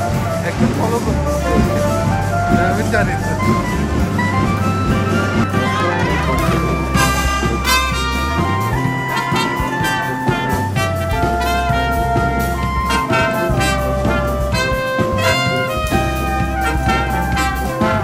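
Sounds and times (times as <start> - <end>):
low sustained bass line: 0.0 - 9.2
trumpets playing melody: 0.0 - 18.0.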